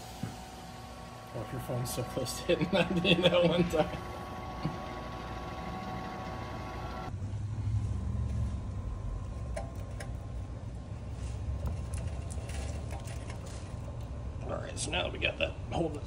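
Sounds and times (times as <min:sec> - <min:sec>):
polishing machine whine: 0:00.0 - 0:07.2.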